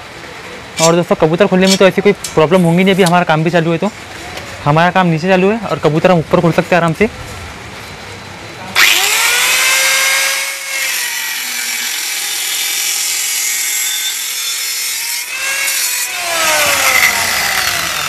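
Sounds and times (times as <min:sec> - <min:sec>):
cutter motor whining: 0:08.8 - 0:18.0.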